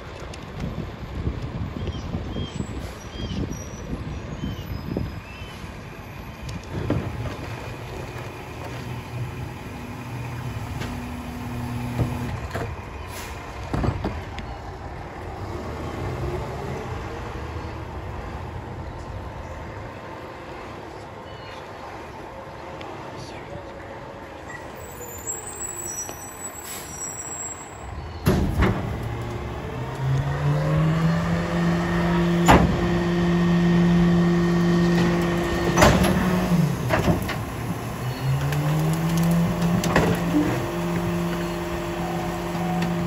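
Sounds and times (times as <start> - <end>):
garbage truck engine running: 6.7 - 15.2, 30.7 - 43.0.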